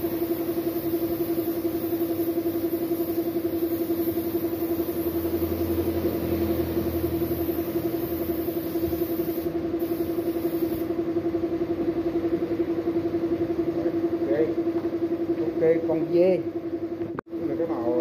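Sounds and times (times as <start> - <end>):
spray gun hissing: 0.0 - 6.4, 7.0 - 10.9
air compressor running: 0.0 - 18.0.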